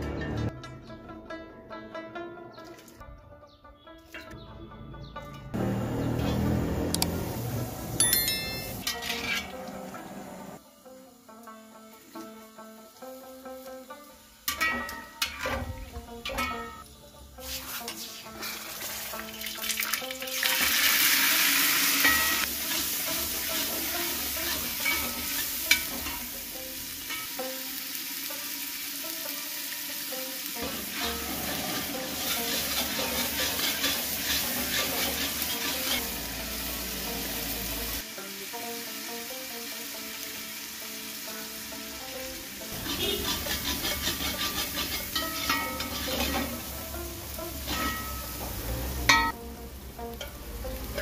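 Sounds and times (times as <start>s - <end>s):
metal ladle scraping pot: 8.8s - 9.6s, 17.4s - 19.0s, 22.0s - 26.2s, 30.6s - 36.0s, 42.7s - 48.5s
onion paste sizzling in oil: 10.5s - 51.0s.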